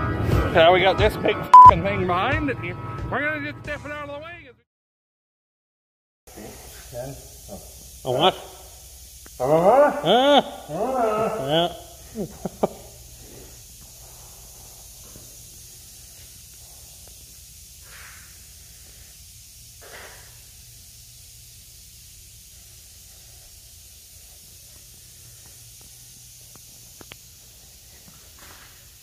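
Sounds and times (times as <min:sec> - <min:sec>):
high hiss: 0:06.3 - 0:29.0
short hissy puffs: 0:06.3 - 0:29.0.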